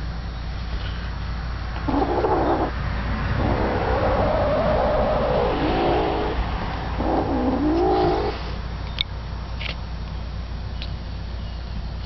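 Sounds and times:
kitten growling: 0:01.8 - 0:08.5.

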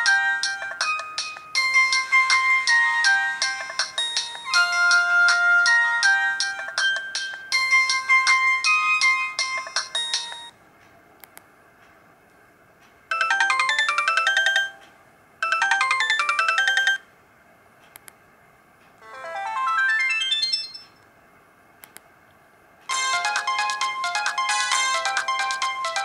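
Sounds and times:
polyphonic phone ringtones: 0:00.0 - 0:10.5, 0:13.1 - 0:14.8, 0:15.4 - 0:17.1, 0:19.0 - 0:21.0, 0:22.9 - 0:26.0.

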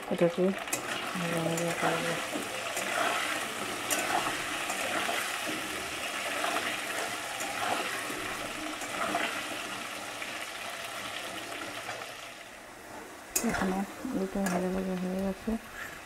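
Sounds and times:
potatoes sizzling in oil: 0:00.0 - 0:16.0
spatula scraping a wok: 0:00.7 - 0:10.0.

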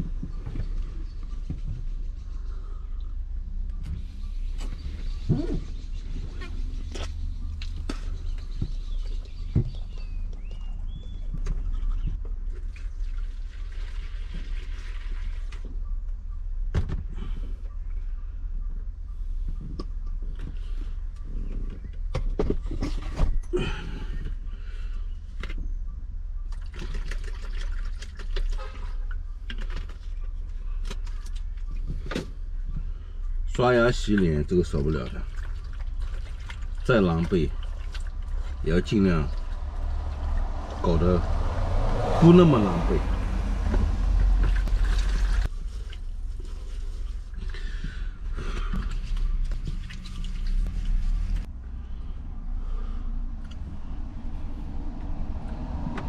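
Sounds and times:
water sloshing and pouring: 0:11.6 - 0:15.7, 0:26.5 - 0:32.2, 0:33.9 - 0:51.5.

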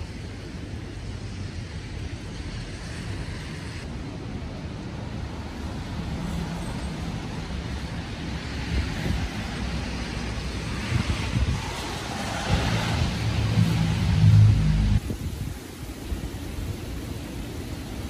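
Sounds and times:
wind buffeting microphone: 0:07.0 - 0:18.0
car driving past: 0:11.8 - 0:15.0.

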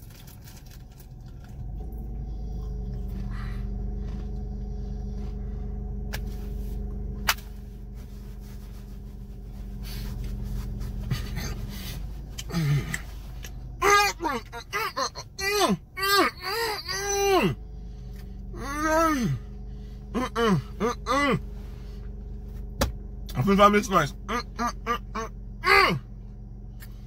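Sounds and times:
man humming while chewing: 0:10.1 - 0:13.5, 0:20.1 - 0:21.5.

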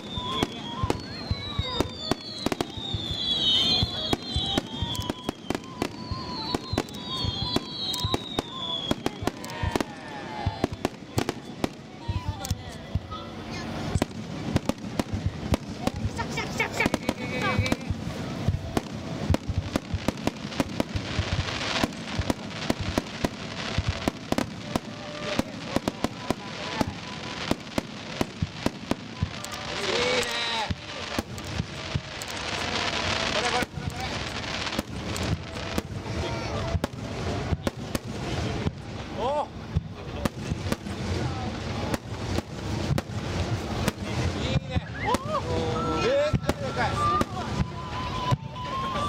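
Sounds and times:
fireworks bursting: 0:00.0 - 0:49.0
fireworks crackling: 0:00.0 - 0:49.0.

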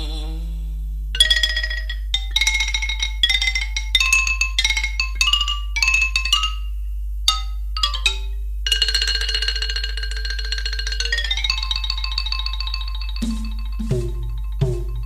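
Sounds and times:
steady low hum: 0:00.0 - 0:08.8, 0:10.8 - 0:15.0
struck instrument melody: 0:13.2 - 0:15.0.

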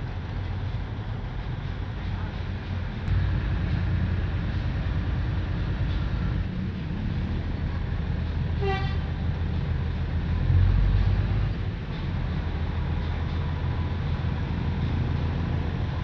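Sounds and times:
diesel train engine rumble: 0:00.0 - 0:16.0
short train horn toot: 0:08.6 - 0:09.1.

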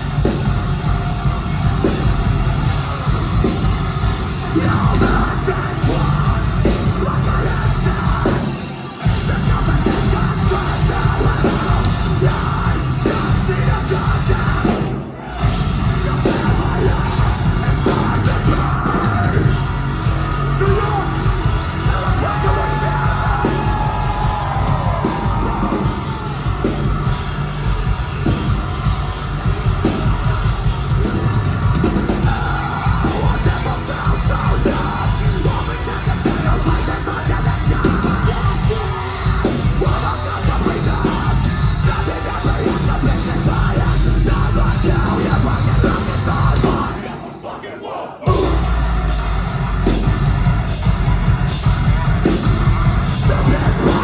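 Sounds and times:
metal band playing live: 0:00.0 - 0:47.4, 0:48.2 - 0:54.0
screamed vocals: 0:16.3 - 0:27.2, 0:32.1 - 0:49.0.

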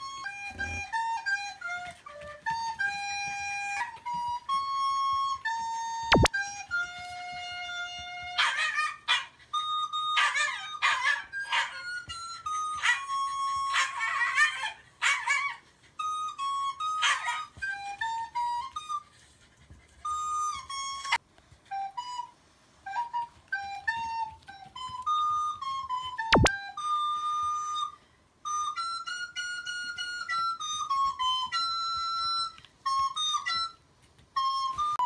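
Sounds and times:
recorder tune through phone speaker: 0:06.0 - 0:08.5, 0:26.3 - 0:26.5.

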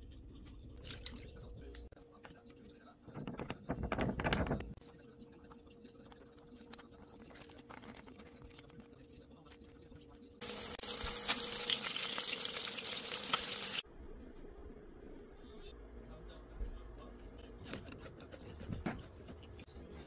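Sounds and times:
food sizzling in hot oil: 0:10.4 - 0:13.8.

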